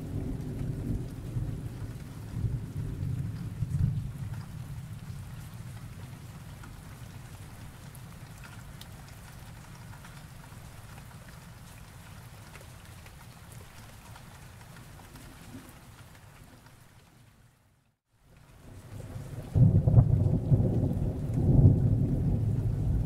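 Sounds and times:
thunder rumbling: 0:00.0 - 0:06.1, 0:18.8 - 0:23.0
rain: 0:00.0 - 0:23.0.

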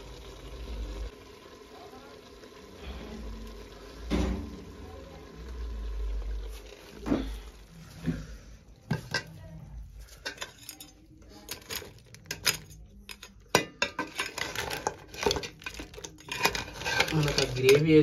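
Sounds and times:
metal spoon scraping pot: 0:08.9 - 0:18.0.

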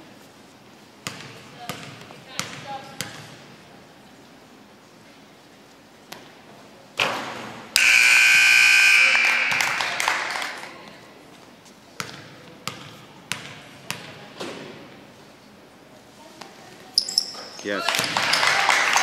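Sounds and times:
basketball bouncing on court: 0:01.0 - 0:03.4, 0:07.8 - 0:10.6, 0:12.0 - 0:14.2
scoreboard buzzer: 0:07.8 - 0:10.7.

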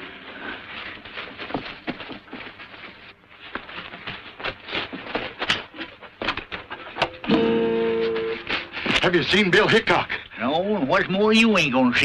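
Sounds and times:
scuffling footsteps: 0:00.0 - 0:10.0.

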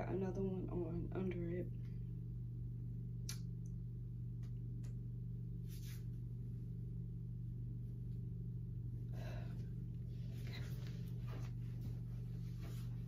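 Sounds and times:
low room hum: 0:00.0 - 0:13.0
soft rustle: 0:05.6 - 0:06.2, 0:10.1 - 0:13.0.

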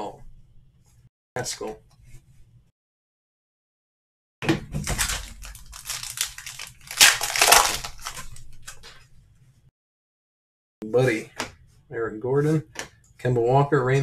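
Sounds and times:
plastic wrapper ripping: 0:04.8 - 0:08.9
plastic wrapper crinkling: 0:04.8 - 0:09.0.

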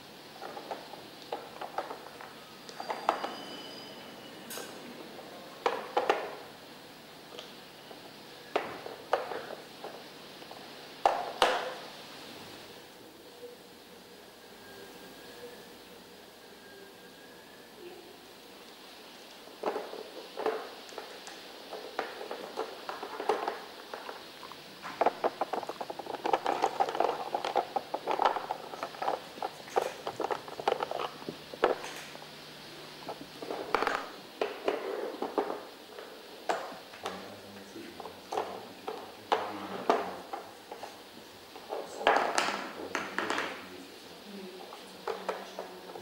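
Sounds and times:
plastic puzzle pieces clicking and rattling: 0:24.9 - 0:32.1.

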